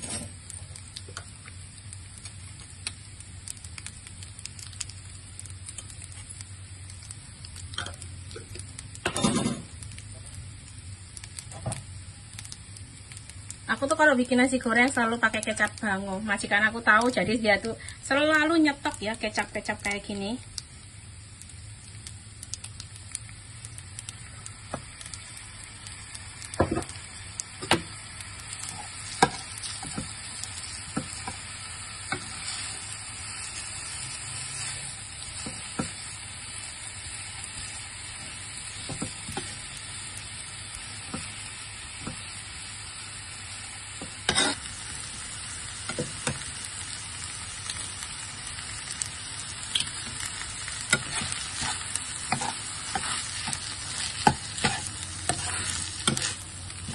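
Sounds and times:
rice sizzling in a frying pan: 0.0s - 56.9s
spatula scraping a pan: 44.0s - 44.7s, 50.9s - 56.9s.

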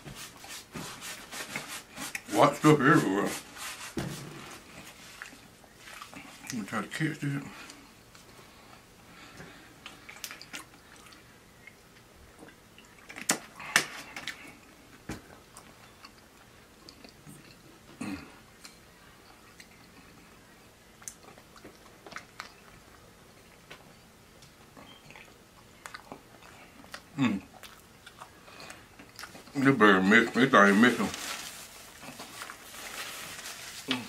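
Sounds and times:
person chewing with wet smacks: 9.3s - 13.6s, 14.2s - 29.6s.

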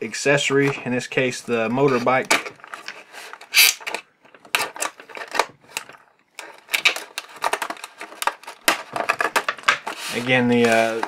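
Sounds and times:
craft knife slicing plastic: 3.4s - 5.8s.

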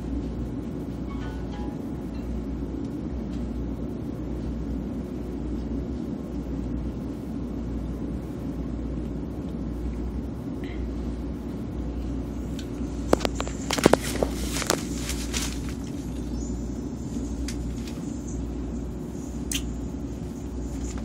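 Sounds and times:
high-speed train rumble: 0.0s - 21.0s.

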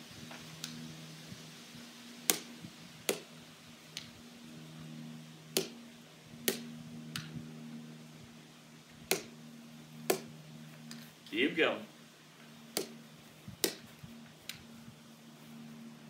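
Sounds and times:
steady low hum: 0.0s - 16.0s
wiffle ball tapping off paddle: 5.5s - 5.8s, 9.1s - 9.3s, 10.1s - 10.3s, 13.6s - 13.8s.

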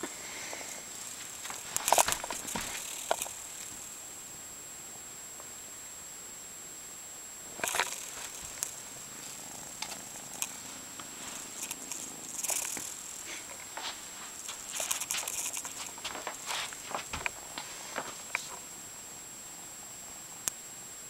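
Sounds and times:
kitten purring: 0.3s - 3.9s, 7.5s - 18.7s
kittens scuffling on bedding: 0.6s - 3.7s, 7.6s - 18.6s.

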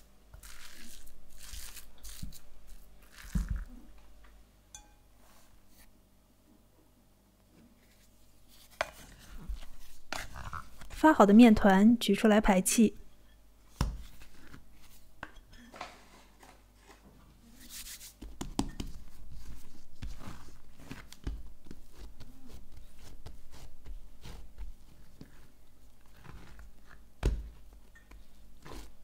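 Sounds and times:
dough handling noises: 0.0s - 4.2s, 7.4s - 11.8s, 13.6s - 29.0s
dough thumps: 18.2s - 19.1s, 19.9s - 25.5s, 26.1s - 28.9s.

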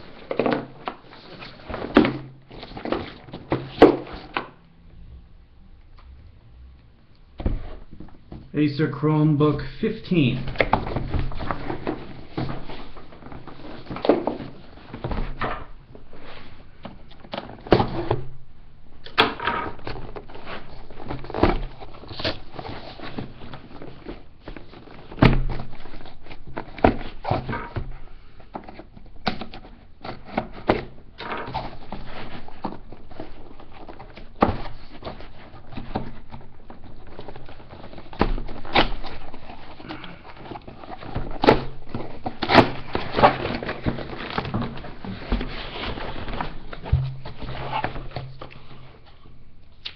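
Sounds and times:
cardboard box rustling and scraping: 0.0s - 4.4s, 10.7s - 15.5s, 19.8s - 27.8s, 30.0s - 49.3s
knocks and thuds: 46.6s - 48.4s.

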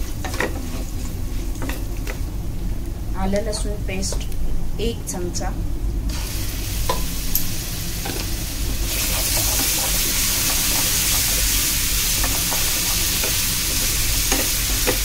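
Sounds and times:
paste sizzling in hot oil: 6.1s - 15.0s.

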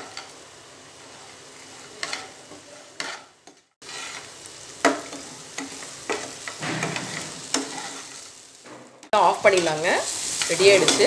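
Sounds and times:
light sizzle: 0.0s - 11.0s
spatula scraping frying pan: 1.1s - 8.4s.

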